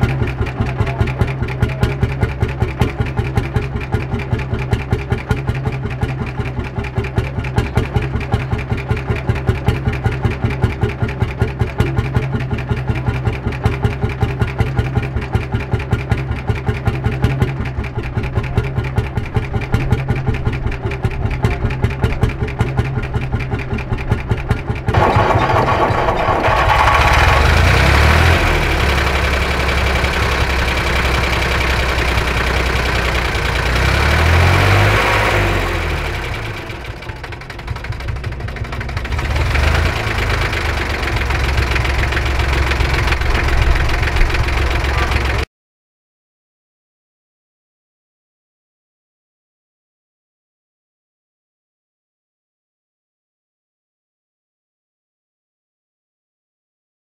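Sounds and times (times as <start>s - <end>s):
diesel tractor engine running: 0.0s - 45.5s
hot bulb engine idling: 16.1s - 34.7s, 36.0s - 45.4s.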